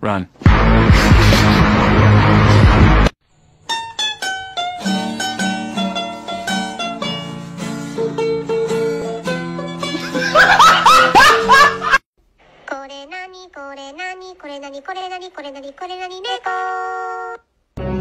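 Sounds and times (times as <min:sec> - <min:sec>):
upbeat plucked string music: 0:03.7 - 0:10.3.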